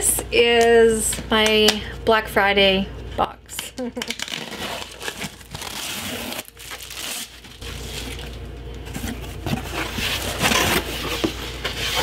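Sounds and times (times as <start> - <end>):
packing tape peeling: 4.0 - 8.4
cardboard rustling and scraping: 4.4 - 12.0.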